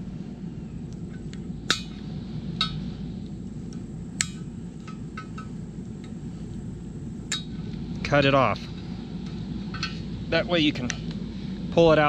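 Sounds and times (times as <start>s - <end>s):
light metallic ticks: 2.6s - 6.6s
hand tool clinking on metal rim: 4.2s - 6.2s.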